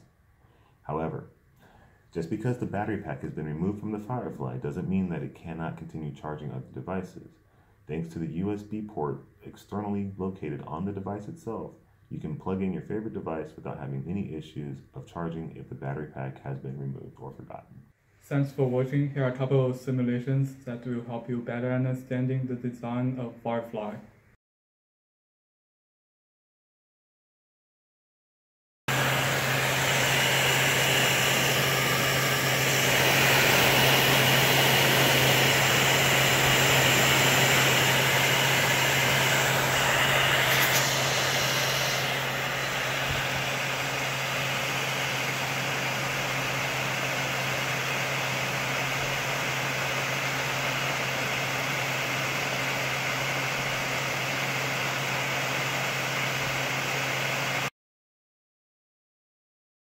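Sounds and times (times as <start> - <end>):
gas torch flame roaring: 28.9 - 56.7.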